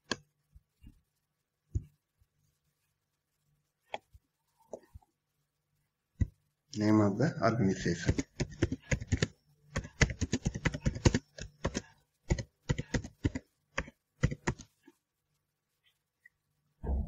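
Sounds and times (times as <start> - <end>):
computer keyboard typing: 7.8 - 14.7.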